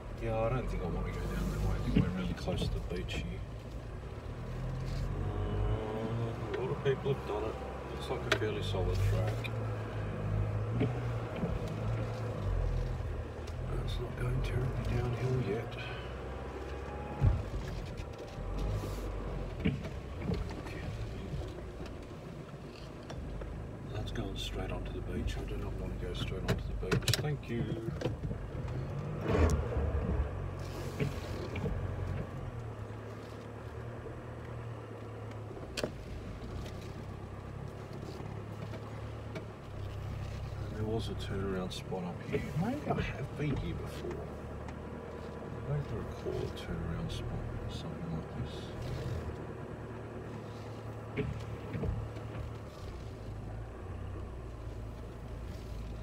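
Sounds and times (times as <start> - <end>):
car engine running from inside cabin: 0.0 - 56.0.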